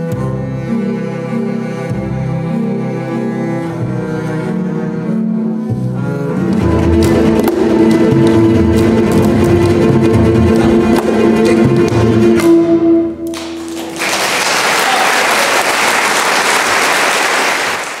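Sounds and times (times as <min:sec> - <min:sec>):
double bass quartet playing: 0:00.0 - 0:13.8
audience applauding: 0:13.3 - 0:18.0.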